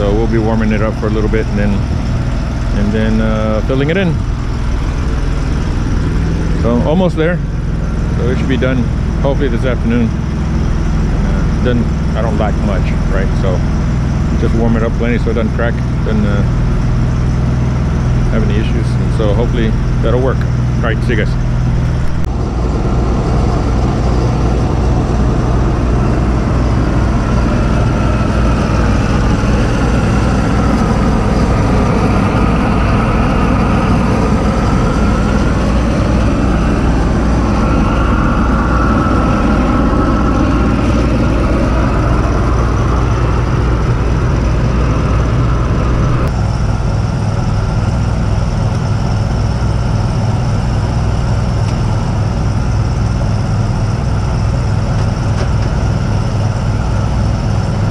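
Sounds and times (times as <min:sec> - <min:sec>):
welder engine idling: 0:00.0 - 0:57.9
torch flame rushing: 0:21.8 - 0:52.4.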